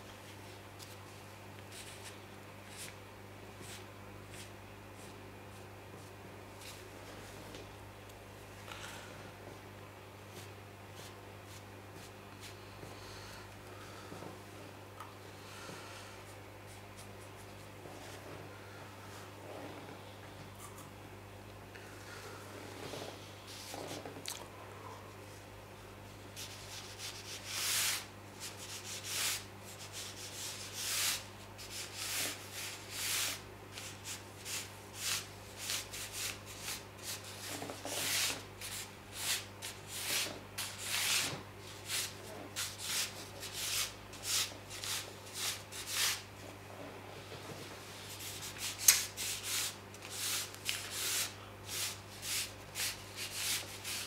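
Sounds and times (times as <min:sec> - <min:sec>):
low steady hum: 0:00.0 - 0:54.0
brush swishing across paper: 0:26.4 - 0:46.2, 0:47.9 - 0:54.0.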